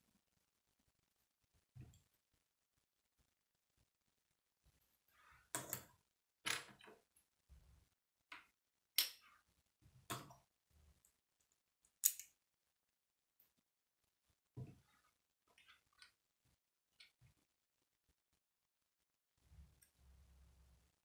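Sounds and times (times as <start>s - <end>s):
plastic bricks clicking together: 12.0s - 12.4s.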